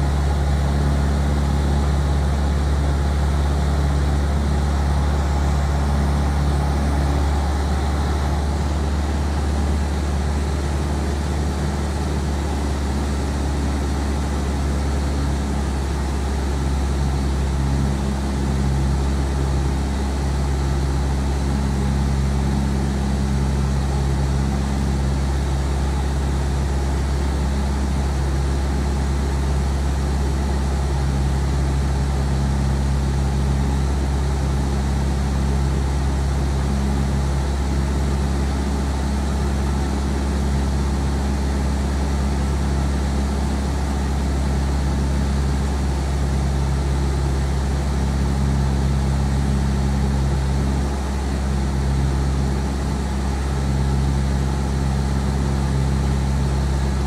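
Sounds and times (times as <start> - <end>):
light aircraft engine drone: 0.0 - 57.0.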